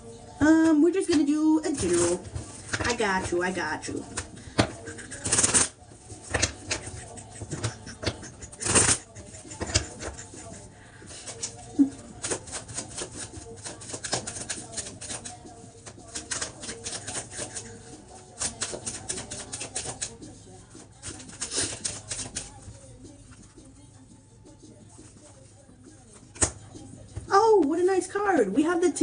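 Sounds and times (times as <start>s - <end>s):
cards being shuffled by hand: 1.7s - 23.7s.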